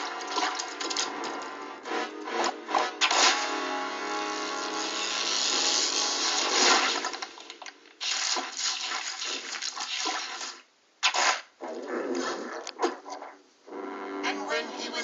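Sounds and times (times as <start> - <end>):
harsh buzzing tone: 0.0 - 8.7, 13.7 - 15.0.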